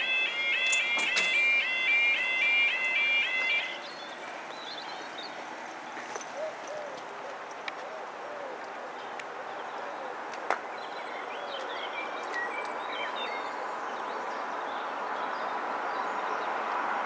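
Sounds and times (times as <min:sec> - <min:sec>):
train approaching: 0:00.0 - 0:06.4
birds chirping: 0:00.0 - 0:16.6.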